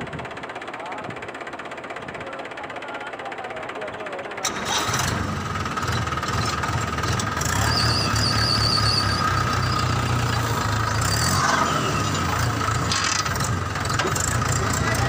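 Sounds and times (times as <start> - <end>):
engine chugging with whine: 0.0 - 15.0
high warbling squeal: 7.4 - 12.2.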